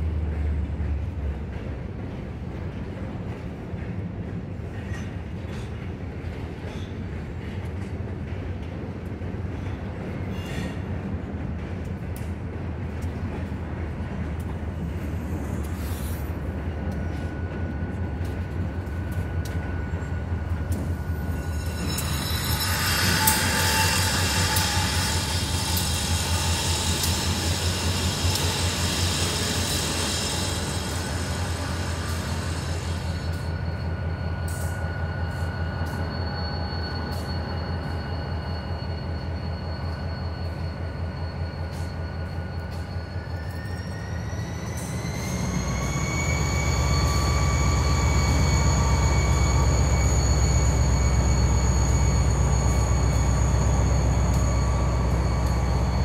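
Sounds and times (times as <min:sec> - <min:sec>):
diesel locomotive engines droning: 0:00.0 - 0:56.0
wheels squealing on rails: 0:04.4 - 0:56.0
hiss: 0:23.2 - 0:33.4.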